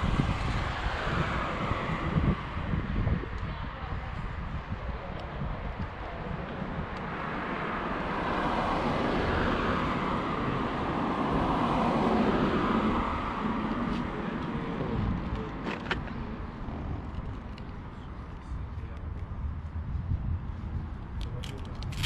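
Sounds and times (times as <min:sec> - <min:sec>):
vehicle passing: 0:06.2 - 0:15.6.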